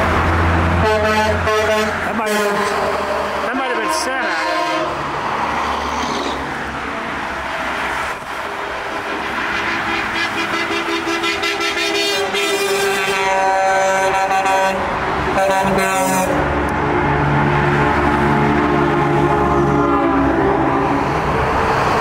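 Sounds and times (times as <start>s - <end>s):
traffic engines and tyres: 0.0s - 22.0s
vehicle horns honking: 0.8s - 5.0s, 9.7s - 16.5s, 18.3s - 21.0s.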